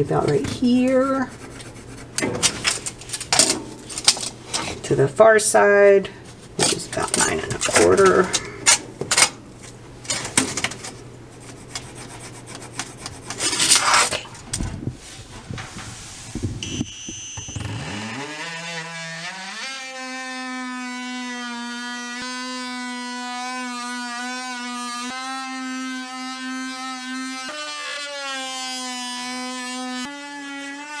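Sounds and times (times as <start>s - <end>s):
handling knocks and rustles: 6.3s - 11.0s
oscillating multi-tool buzzing: 16.6s - 31.0s.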